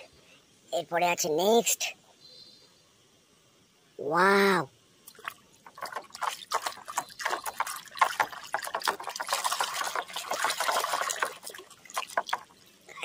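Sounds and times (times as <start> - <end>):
water sloshing in plastic basin: 5.1 - 12.6.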